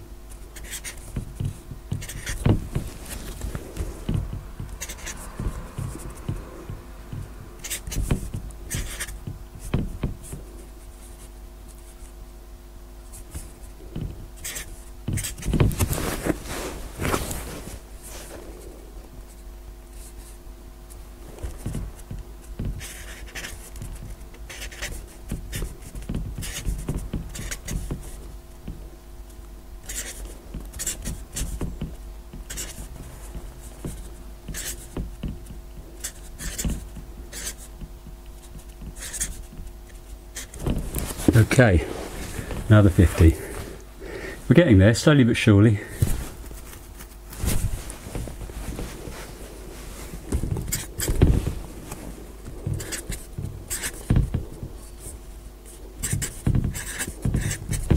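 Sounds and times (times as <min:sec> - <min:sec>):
faint steady hum: 0:00.0 - 0:57.9
marker pen scratching on board: 0:00.3 - 0:12.2, 0:13.1 - 0:16.4, 0:19.2 - 0:28.2, 0:29.3 - 0:37.8, 0:38.4 - 0:43.6, 0:50.2 - 0:57.9.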